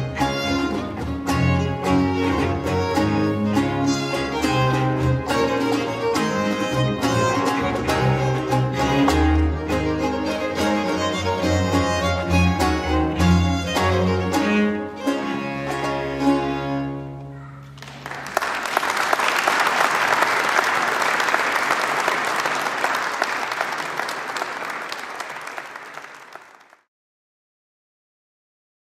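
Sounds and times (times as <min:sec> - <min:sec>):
baroque string ensemble: 0:00.0 - 0:17.3
audience applause: 0:17.6 - 0:26.9.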